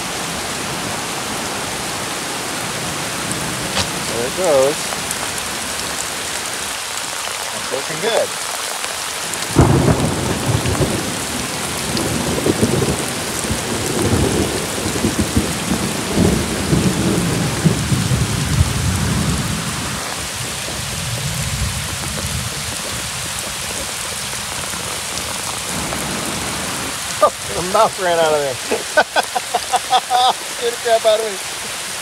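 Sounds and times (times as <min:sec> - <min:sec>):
heavy rain pouring: 0:00.0 - 0:32.0
rain striking the microphone: 0:00.0 - 0:32.0
thunder rumbling: 0:09.5 - 0:23.8.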